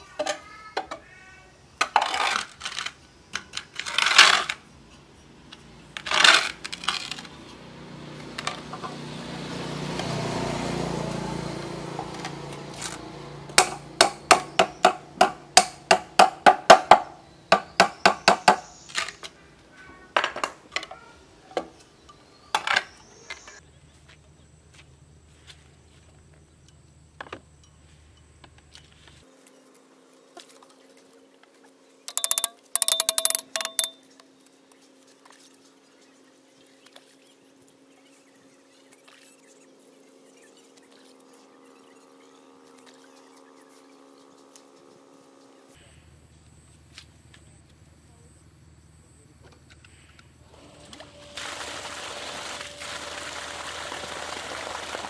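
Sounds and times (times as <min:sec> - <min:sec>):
fast hammer taps: 0:32.1 - 0:34.0.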